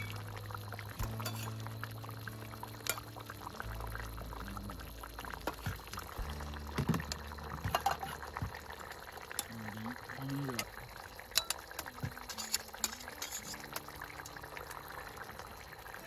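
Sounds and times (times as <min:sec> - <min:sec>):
liquid bubbling in a pot: 0:00.0 - 0:16.0
soft background music: 0:00.0 - 0:16.0
metal tongs clicking: 0:11.4 - 0:11.6.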